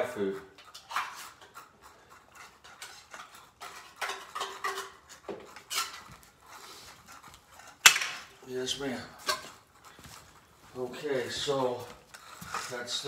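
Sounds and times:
utensil scraping a dish: 0.0s - 13.0s.

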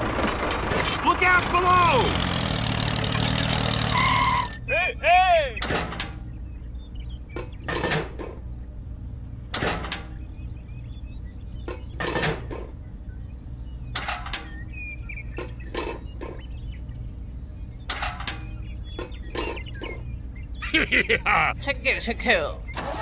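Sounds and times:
small hard parts clattering: 3.0s - 3.8s
steady low hum: 4.4s - 22.8s.

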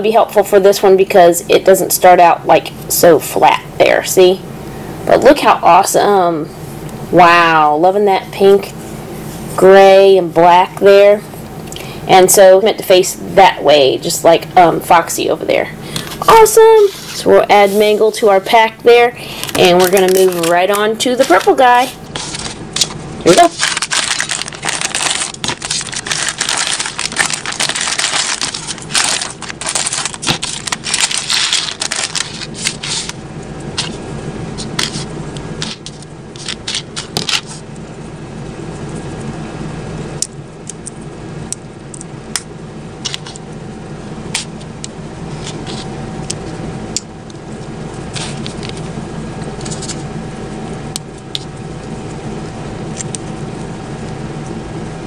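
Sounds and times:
steady low hum: 0.0s - 55.0s
plastic bag crinkling: 19.3s - 33.2s
scissors cutting plastic: 19.4s - 33.2s, 34.6s - 37.6s.

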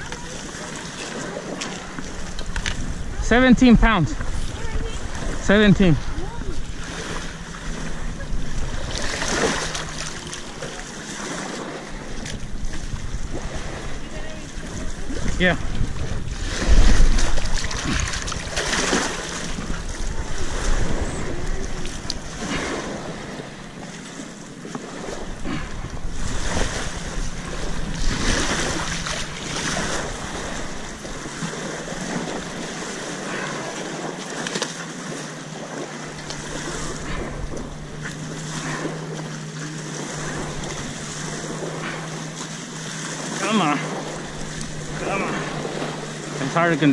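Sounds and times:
waves lapping at shore: 0.0s - 46.9s
wind gusting on microphone: 2.1s - 10.6s, 11.3s - 23.7s.

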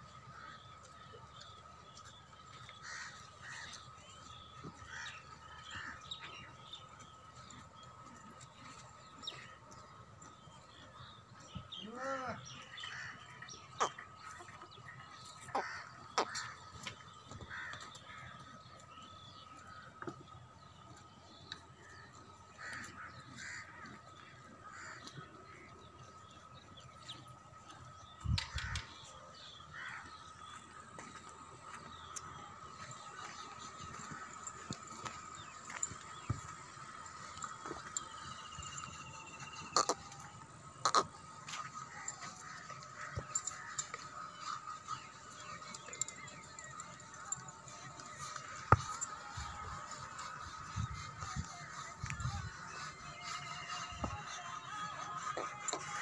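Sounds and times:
crows cawing: 2.7s - 3.8s, 15.4s - 16.8s, 17.4s - 18.5s, 22.5s - 25.7s, 29.7s - 30.3s.

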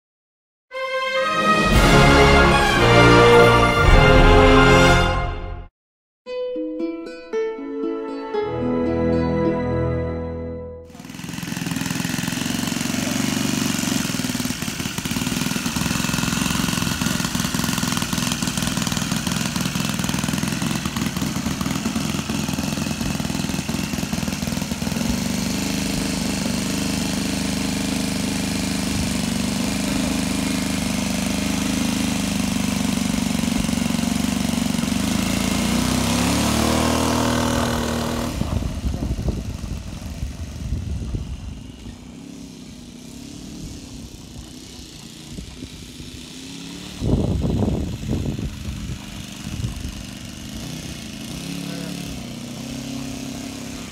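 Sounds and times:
model aeroplane engine revving: 10.9s - 53.9s.

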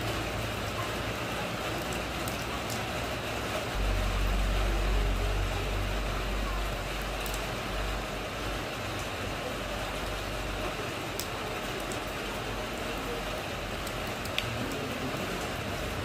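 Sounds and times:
rain falling into puddle: 0.0s - 16.0s
low rumble: 3.7s - 10.6s
water drip plink: 6.4s - 7.6s, 13.8s - 14.6s.

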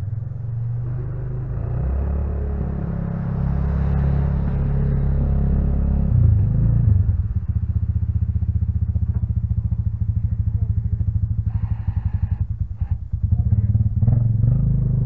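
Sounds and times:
atv engine idling: 4.5s - 15.0s.

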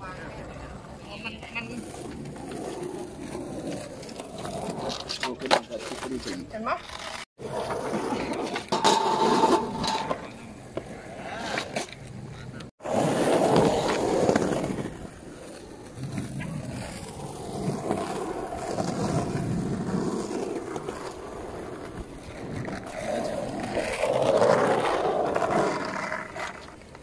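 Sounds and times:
skateboard wheels rolling on concrete: 0.0s - 27.0s.

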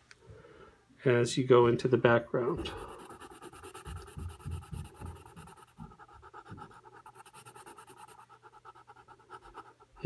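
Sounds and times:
pencil scratching on paper: 2.6s - 10.0s.

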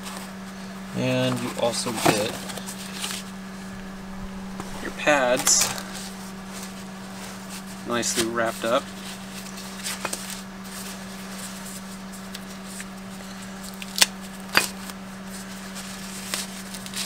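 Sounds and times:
low hum: 0.0s - 16.2s
paper rustling and crinkling: 1.1s - 17.0s
sharp paper crackles: 4.6s - 17.0s.

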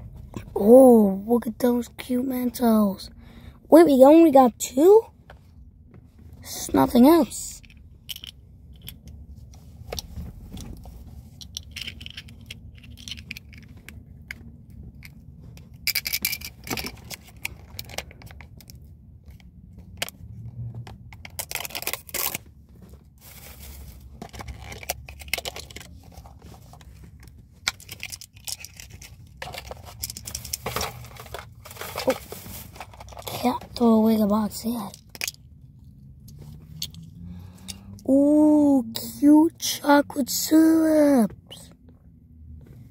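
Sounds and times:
plastic wrappers crinkling: 27.8s - 33.6s.

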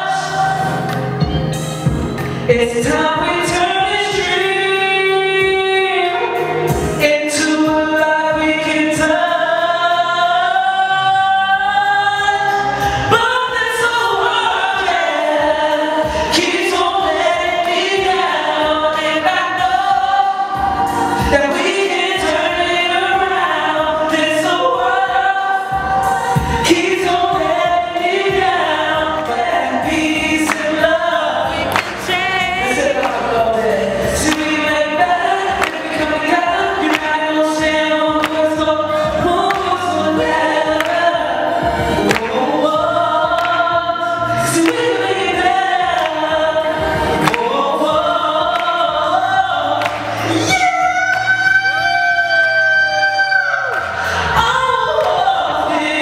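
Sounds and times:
backing music: 0.0s - 56.0s
person singing long notes: 20.1s - 56.0s.

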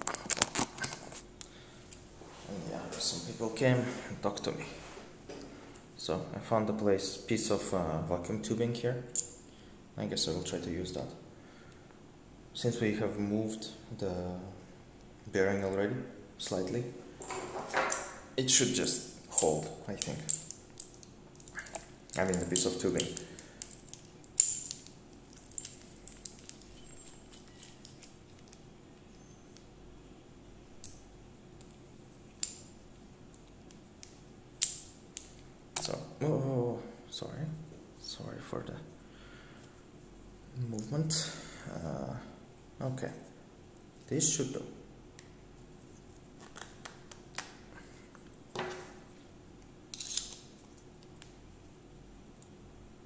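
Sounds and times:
metal tools clinking on table: 19.3s - 28.6s.

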